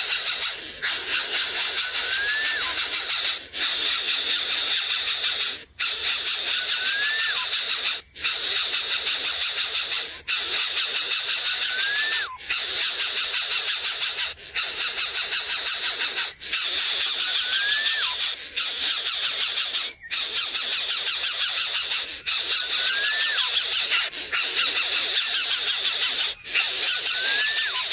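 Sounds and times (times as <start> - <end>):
rising and falling whistle: 2.0 - 2.7, 6.6 - 7.4, 11.7 - 12.3, 17.4 - 18.1, 27.2 - 27.8.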